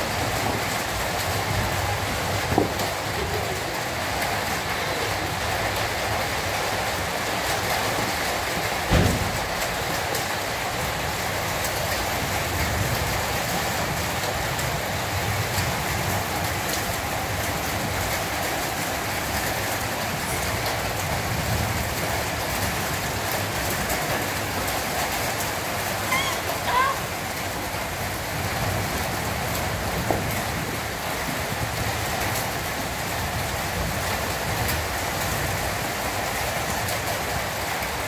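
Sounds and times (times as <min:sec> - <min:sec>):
thump: 0:08.9 - 0:09.5.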